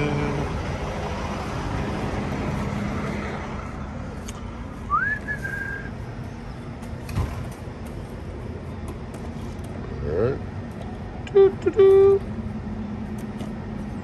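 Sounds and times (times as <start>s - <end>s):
idling truck hum: 0.0s - 14.0s
whistled note sliding up: 4.9s - 5.9s.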